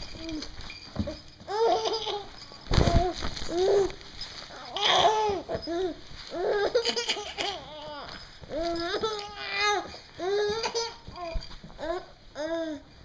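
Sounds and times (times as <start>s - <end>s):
baby giggling: 6.5s - 7.8s.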